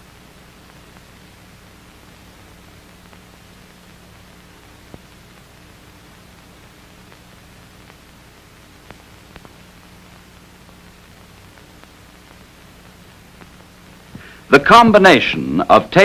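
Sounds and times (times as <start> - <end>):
faint hum: 0.0 - 16.0
film soundtrack hiss: 0.0 - 16.0
faint clicks: 7.0 - 8.1, 8.8 - 10.2, 11.0 - 14.3.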